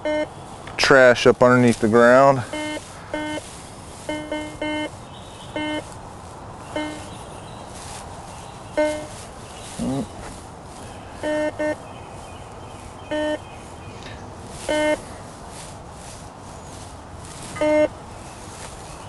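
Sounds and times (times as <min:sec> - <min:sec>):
metal detector beeps: 0:00.0 - 0:00.3, 0:02.4 - 0:06.0, 0:06.7 - 0:07.1, 0:08.7 - 0:09.3, 0:11.2 - 0:11.8, 0:13.1 - 0:13.4, 0:14.6 - 0:15.1, 0:17.5 - 0:18.0.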